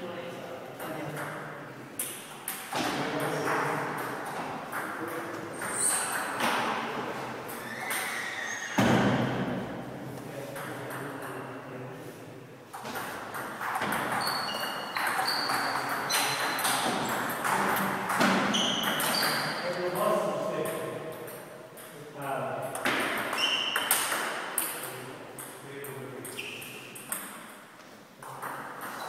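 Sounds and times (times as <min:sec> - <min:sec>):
table tennis balls clicking: 0:28.2 - 0:29.0.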